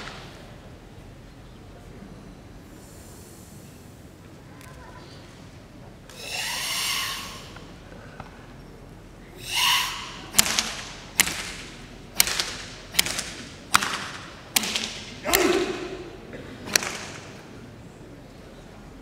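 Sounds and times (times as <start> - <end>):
forceful exhaled breath: 6.1 - 7.6, 9.4 - 10.3
hand slaps on bare body: 12.2 - 15.6, 16.7 - 17.2.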